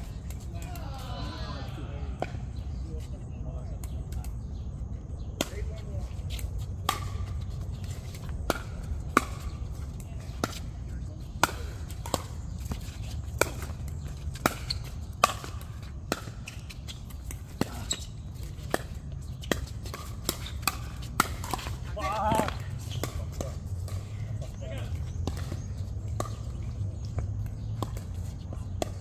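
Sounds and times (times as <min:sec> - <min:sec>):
ball bouncing on court: 0:05.4 - 0:10.7, 0:11.3 - 0:29.0.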